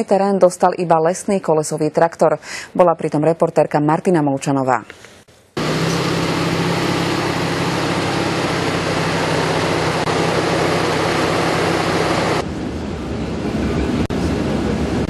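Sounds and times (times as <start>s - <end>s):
diesel engine drone: 5.6s - 15.0s
outdoor rushing noise: 5.6s - 15.0s.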